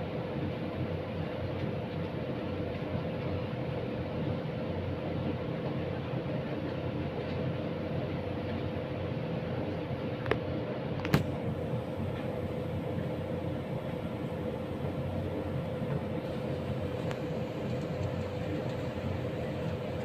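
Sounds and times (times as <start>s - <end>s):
low rumbling hum: 5.0s - 20.0s.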